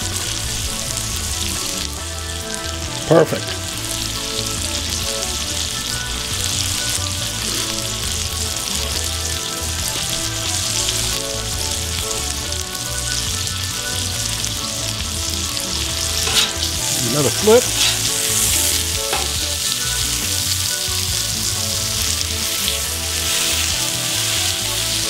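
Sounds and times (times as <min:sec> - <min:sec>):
burger patties sizzling on griddle: 0:00.0 - 0:25.0.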